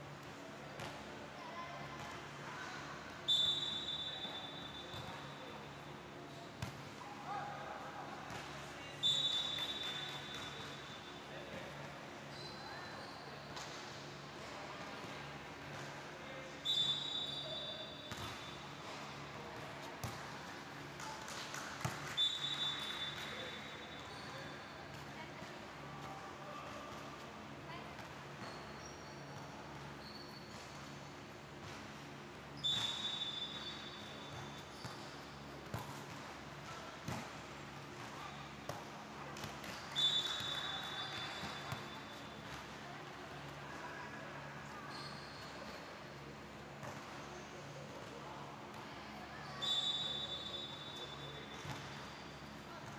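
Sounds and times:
referee's whistle blast: 49.6 - 51.1.

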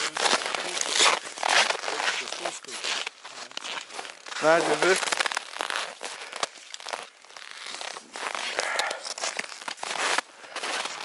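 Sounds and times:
footsteps crunching in snow: 0.0 - 11.0.

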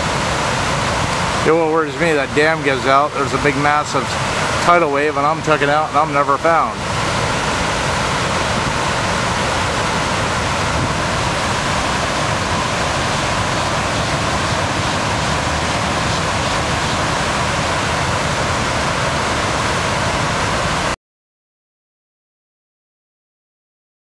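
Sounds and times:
water pouring over a dam: 0.0 - 21.0.

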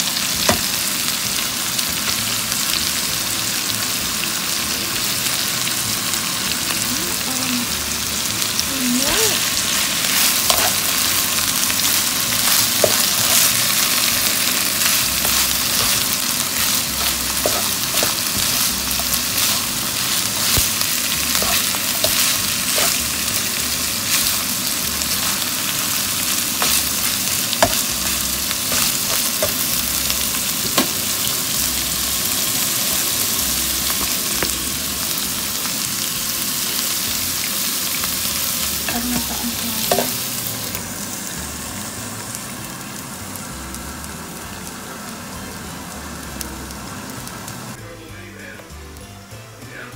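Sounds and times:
food sizzling in pan: 0.0 - 49.9
spatula clicking and scraping: 9.7 - 11.1, 11.8 - 23.1.

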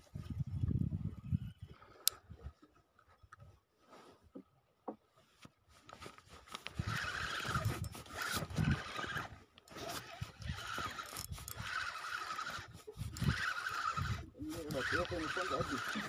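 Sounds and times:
cloth rustling against microphone: 5.2 - 14.9.

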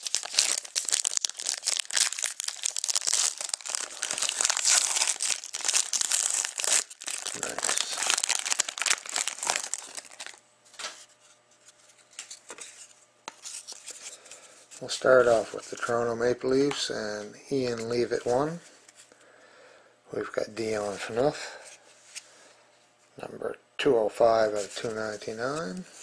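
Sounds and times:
foil wrapper tearing and crinkling: 0.0 - 10.4.

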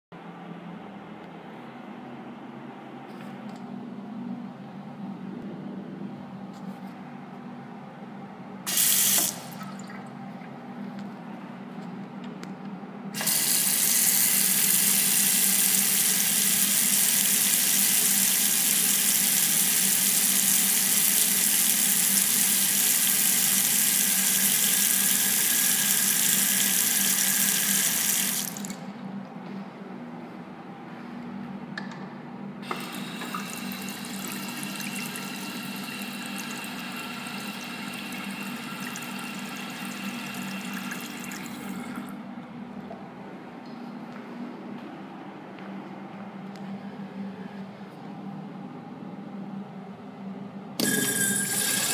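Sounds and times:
faucet water running into basin: 13.2 - 28.8, 32.8 - 41.8, 50.8 - 51.9.

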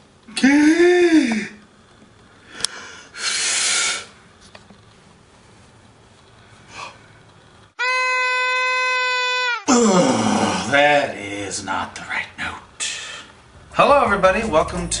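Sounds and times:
short breathy puff: 2.6 - 4.1
steady held note: 7.8 - 9.7.

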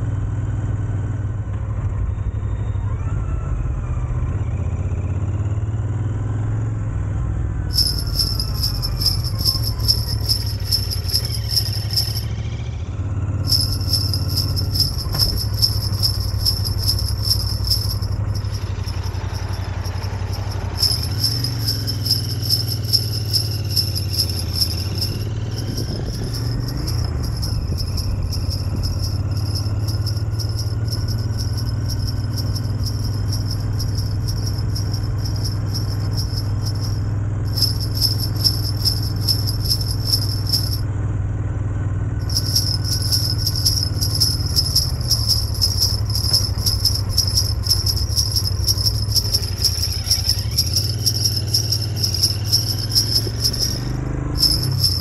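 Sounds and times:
sleigh bells jingling: 7.7 - 12.4, 13.5 - 40.8, 42.2 - 55.0
steady low hum: 13.5 - 40.8, 42.2 - 55.0.

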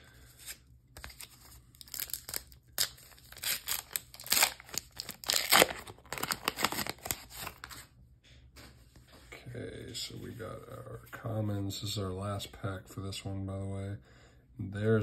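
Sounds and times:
foil wrapper crinkling and tearing: 0.4 - 7.8.

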